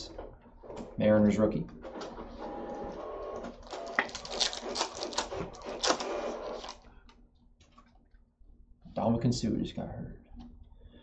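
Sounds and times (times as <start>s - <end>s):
foil wrapper crinkling: 3.6s - 6.9s.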